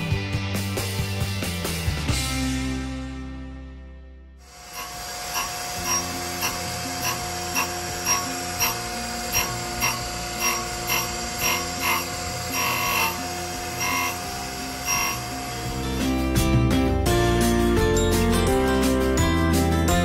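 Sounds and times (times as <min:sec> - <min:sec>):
grinding wheel rasping on steel: 0:04.4 - 0:16.6
surface grinder whining: 0:04.4 - 0:18.6.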